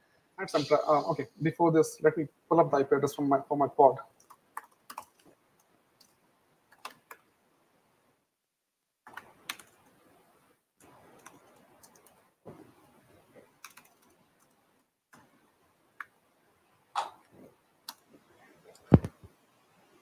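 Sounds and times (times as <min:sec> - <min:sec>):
laptop keyboard keystrokes: 0:04.2 - 0:05.3, 0:06.7 - 0:07.3, 0:09.1 - 0:10.0, 0:11.1 - 0:12.2, 0:13.6 - 0:15.2.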